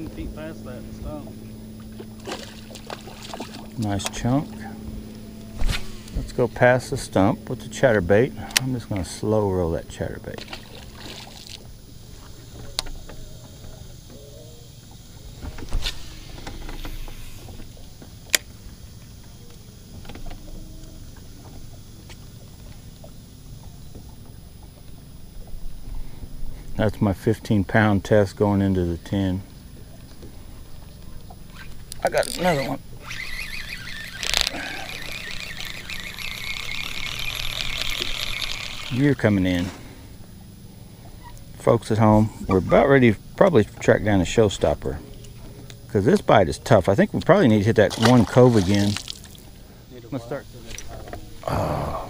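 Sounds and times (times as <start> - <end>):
electric motor humming: 0.0 - 26.5, 27.8 - 42.2
fishing reel cranking: 2.2 - 9.0, 15.6 - 18.4, 31.4 - 39.7.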